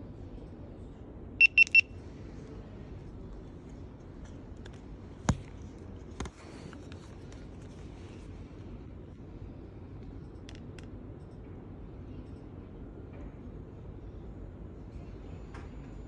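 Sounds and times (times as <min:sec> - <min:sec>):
camera beeping: 0:01.4 - 0:01.9.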